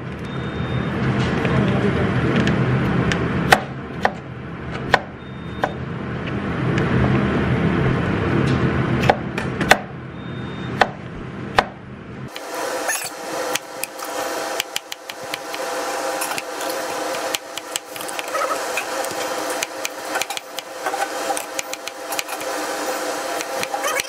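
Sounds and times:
low background hum: 0.0s - 24.0s
knife chopping on plastic board: 19.0s - 22.6s.

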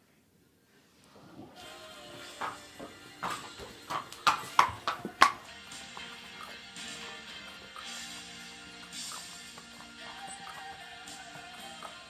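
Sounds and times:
background music with held tones: 1.4s - 12.0s.

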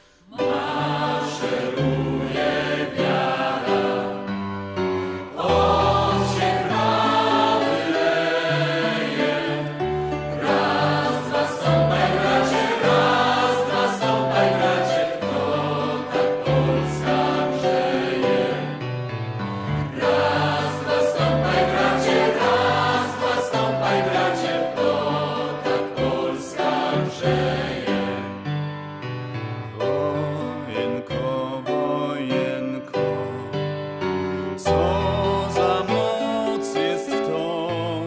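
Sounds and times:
choir singing held chords: 0.0s - 28.6s.

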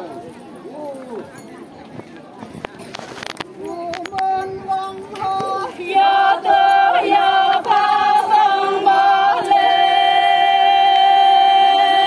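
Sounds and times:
women singing together: 4.2s - 12.0s.

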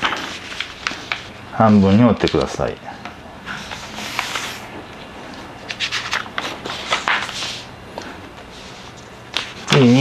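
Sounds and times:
paper rustling and rubbing: 0.0s - 2.6s, 3.5s - 7.7s
sharp scraping strokes on paper: 3.6s - 4.8s.

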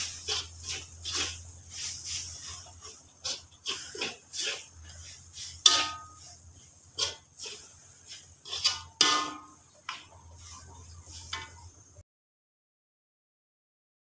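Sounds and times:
metal spatula scraping wok: 0.0s - 12.0s
sharp metal clangs: 5.6s - 6.3s, 8.7s - 9.6s.

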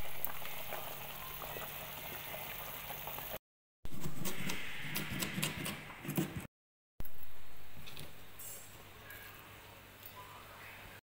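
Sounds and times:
pot of water boiling and bubbling: 0.0s - 3.4s.

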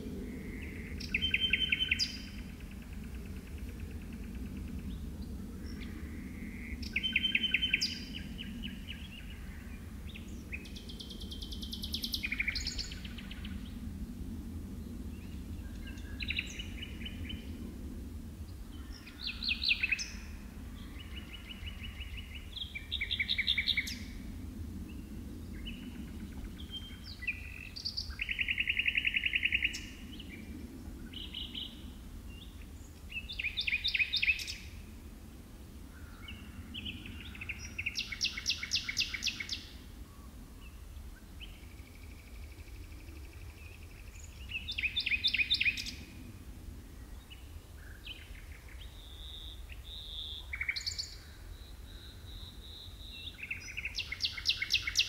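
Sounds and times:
steady low rumble: 0.0s - 38.4s
nightingale singing: 48.9s - 55.0s.

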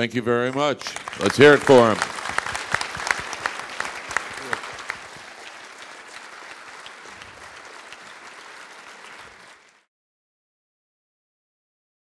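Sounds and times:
audience applause: 0.4s - 9.9s.

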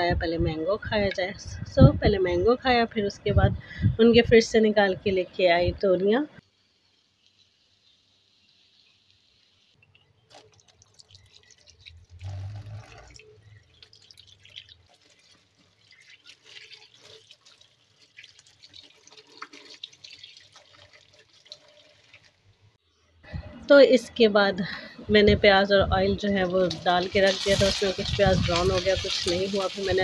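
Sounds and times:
water splashing in steel bowl: 9.9s - 22.4s, 26.2s - 30.0s.

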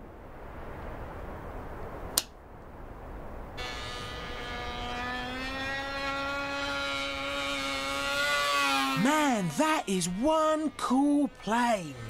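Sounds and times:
small model engine whining: 3.6s - 12.0s.

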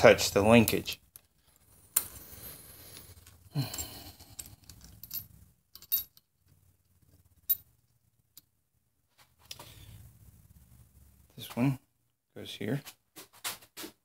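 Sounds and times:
metallic clicks of small bolts: 3.2s - 6.2s.

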